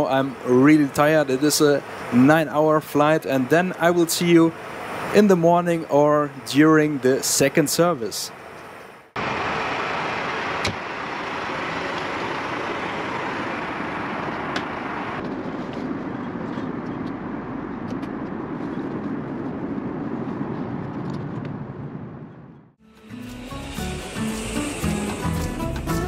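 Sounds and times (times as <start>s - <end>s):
aircraft cabin rushing noise: 11.8s - 22.3s.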